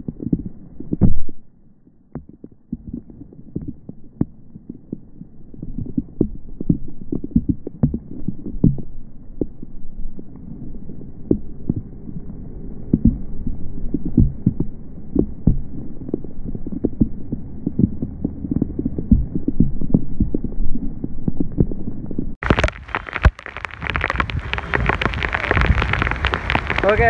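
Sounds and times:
heavy rain on phone microphone: 22.4 - 27.0.

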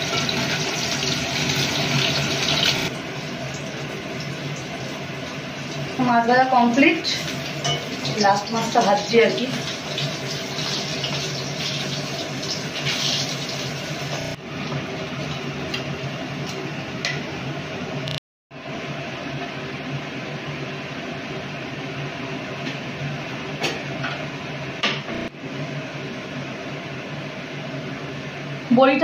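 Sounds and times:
fish sizzling in hot oil: 0.0 - 14.5.

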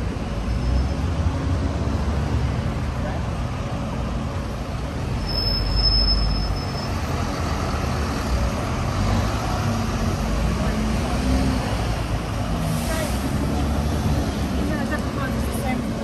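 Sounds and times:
low rumble of street traffic: 0.0 - 16.0
high-pitched squeal: 5.2 - 7.1.

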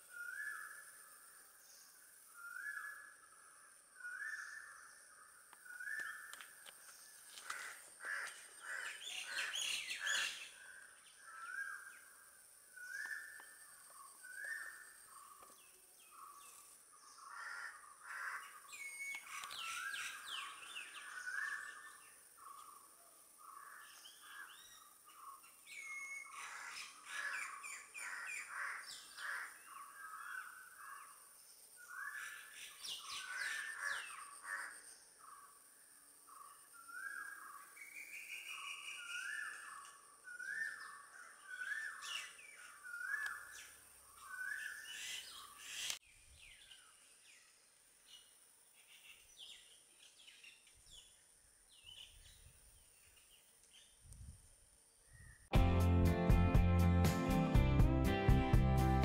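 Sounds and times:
birds calling and chattering: 0.0 - 35.6, 36.2 - 54.1
crows cawing: 7.3 - 10.3, 17.2 - 18.6, 26.4 - 31.1, 33.2 - 34.8.

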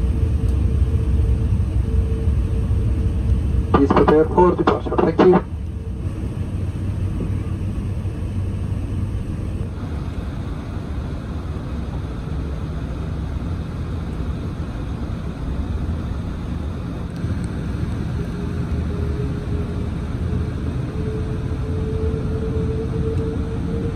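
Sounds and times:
aircraft cabin low rumble: 0.0 - 23.9.

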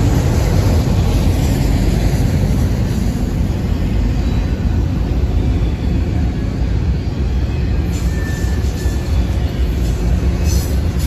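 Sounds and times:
freight train rumbling past: 0.0 - 11.0
high wheel squeal: 7.2 - 11.0.

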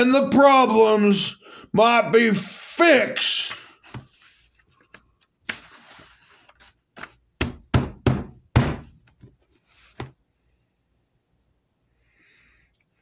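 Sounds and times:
paper rustle: 3.8 - 7.2
sketchbook knocks and thumps: 7.0 - 10.2.

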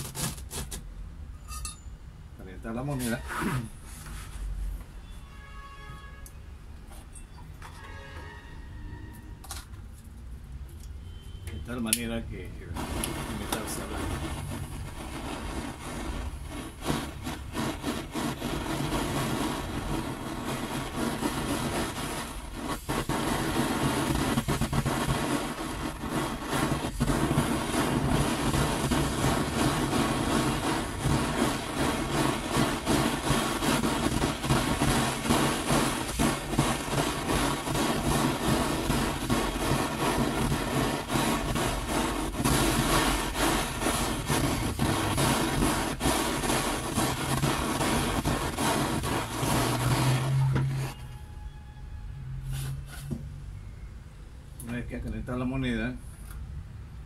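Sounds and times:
gas torch flame hissing: 0.0 - 0.9, 11.7 - 51.1.

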